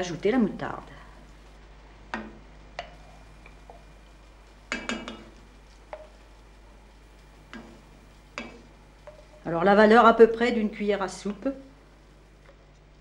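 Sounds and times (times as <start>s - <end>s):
utensils knocking on pot and jar: 4.7s - 5.4s.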